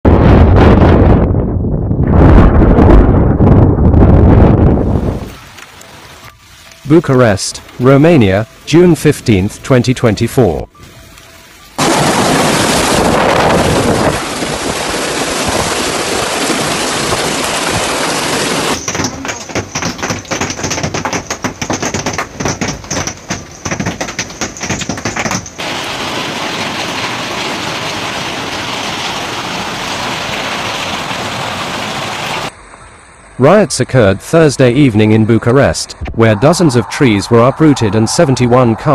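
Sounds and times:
hailstones clattering on hard surface: 0:11.8 - 0:32.2
heavy hail and rain roaring: 0:11.8 - 0:32.5.

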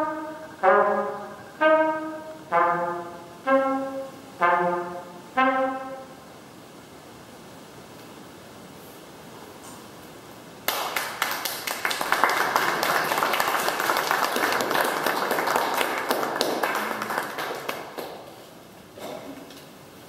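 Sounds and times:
audience applauding: 0:10.7 - 0:18.5.

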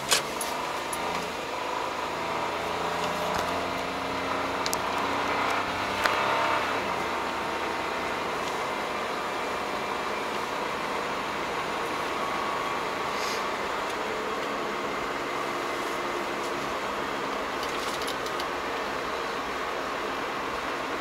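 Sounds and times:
tyres on wet asphalt: 0:00.0 - 0:21.0.

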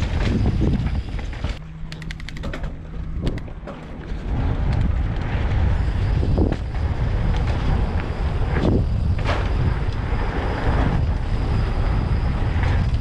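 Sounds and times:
wind rushing over microphone: 0:00.0 - 0:01.6, 0:02.9 - 0:13.0
bike rumble: 0:00.0 - 0:13.0
sharp clicks: 0:01.8 - 0:03.5.

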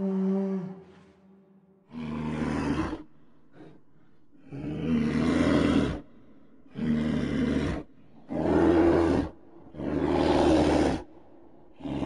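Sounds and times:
deep bear-like roars: 0:01.9 - 0:03.7, 0:06.7 - 0:11.1.

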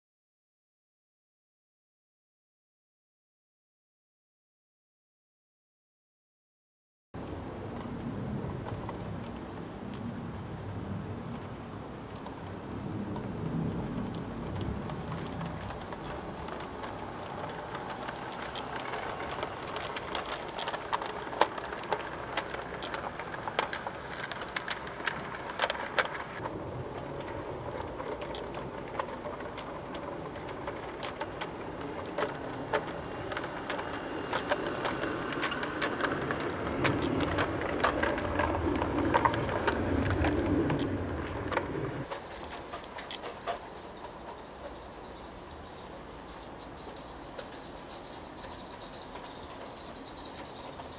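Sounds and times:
wheels clicking and rattling: 0:07.2 - 0:50.9
model train running on track: 0:11.8 - 0:50.9.

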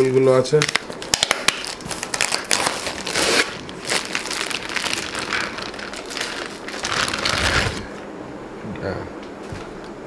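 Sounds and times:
plastic packaging crinkling: 0:00.5 - 0:08.0.

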